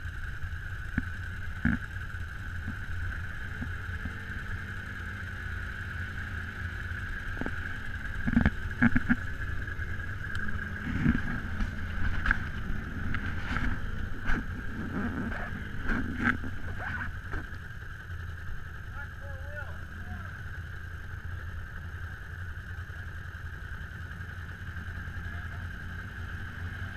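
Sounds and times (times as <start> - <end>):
atv engine idling: 0.0 - 26.9.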